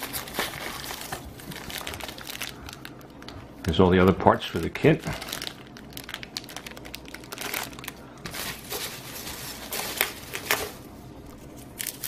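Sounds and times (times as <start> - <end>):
hands rummaging packing peanuts: 0.0 - 3.4, 4.8 - 10.8
plastic bag crinkling: 0.0 - 4.0, 4.6 - 12.0.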